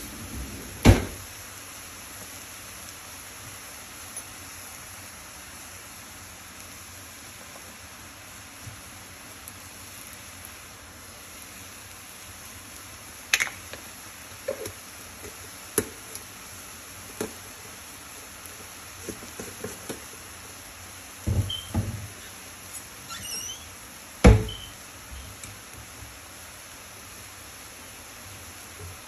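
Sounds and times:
steady low hiss: 0.0s - 29.0s
kitchen knocks and thuds: 0.8s - 1.2s, 21.3s - 22.1s, 24.2s - 24.7s.

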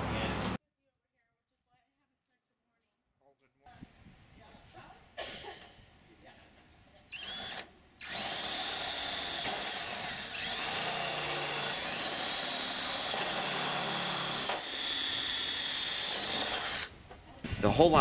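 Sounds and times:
power drill boring through aluminium: 7.1s - 17.0s.

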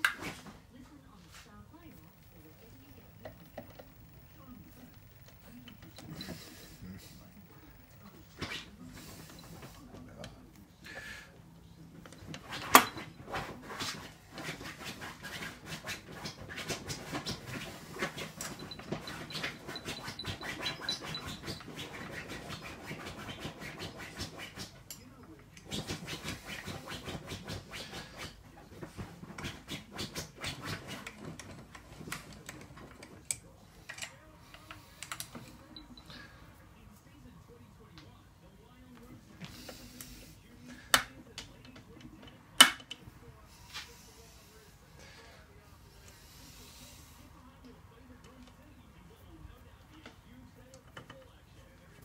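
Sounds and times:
pet scratching at bedding: 12.2s - 24.9s, 25.6s - 33.1s.

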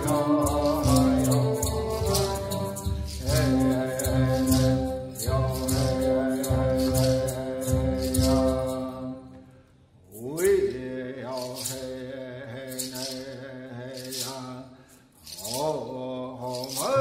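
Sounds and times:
person chanting: 0.0s - 9.4s, 15.3s - 17.0s
string accompaniment: 0.0s - 9.5s.

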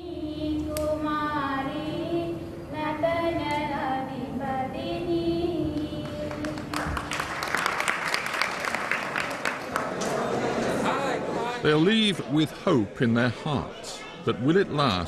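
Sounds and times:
girl singing slow song: 0.0s - 7.2s
people clapping: 5.7s - 11.1s.

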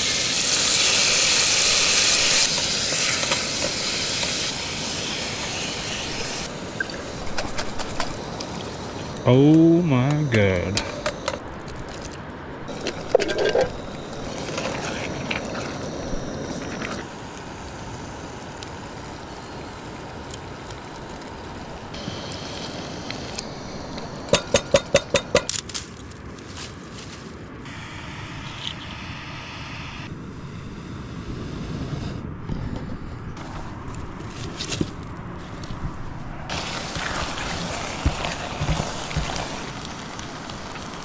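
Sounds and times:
camp stove rushing: 0.0s - 9.4s, 10.4s - 17.1s, 36.5s - 41.0s.

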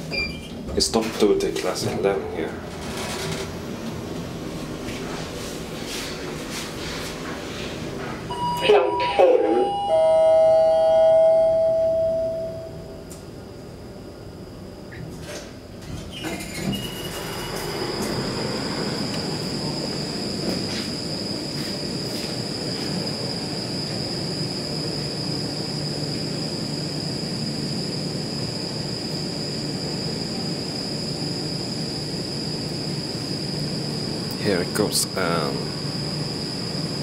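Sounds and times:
metro train rumbling: 0.0s - 37.0s
high-pitched whine: 8.3s - 13.2s, 16.3s - 37.0s.

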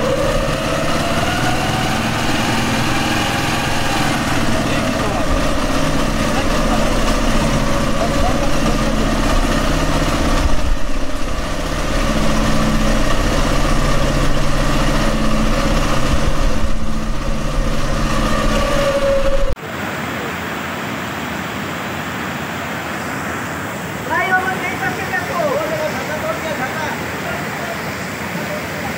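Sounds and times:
loud engine-like hum: 0.0s - 20.5s
flood water rushing: 0.0s - 28.9s.

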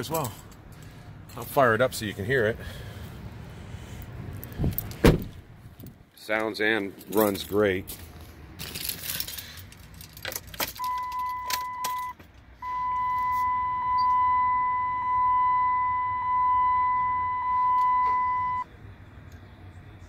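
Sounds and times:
keys jingling in ignition: 4.0s - 5.0s, 5.8s - 12.2s
dashboard warning chime: 10.8s - 18.7s.

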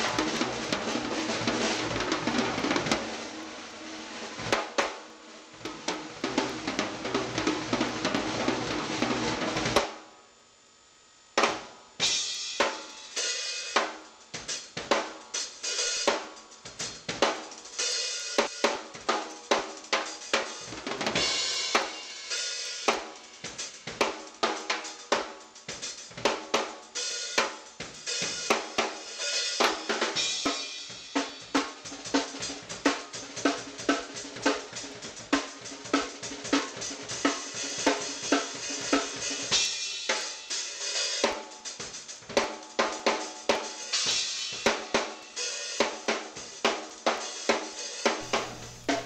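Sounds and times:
drum kit playing: 0.0s - 10.0s, 11.4s - 49.0s
crashing cymbals: 14.4s - 26.1s, 26.8s - 49.0s.

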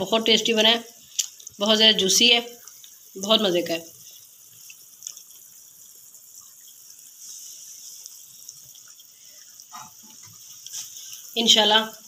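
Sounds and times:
high-pitched background hiss: 0.0s - 12.0s
soft ticks: 1.1s - 1.6s, 2.6s - 3.0s, 4.6s - 5.5s.

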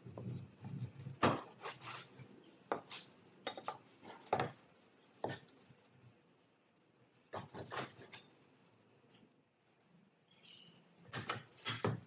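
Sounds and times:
knife chopping on a cutting board: 3.6s - 5.5s, 7.3s - 8.2s, 11.1s - 12.0s.

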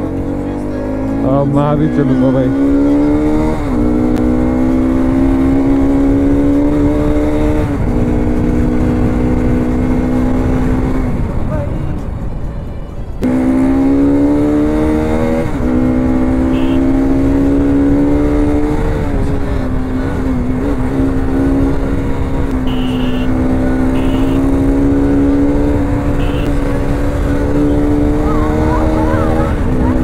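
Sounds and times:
motorcycle engine at high revs: 0.0s - 11.4s, 13.2s - 30.0s
wind rumble on microphone: 5.0s - 13.2s.

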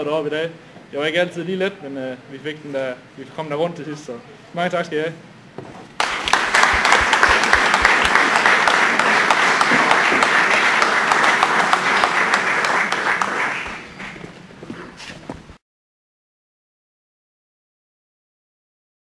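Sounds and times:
audience applauding: 6.0s - 14.3s.

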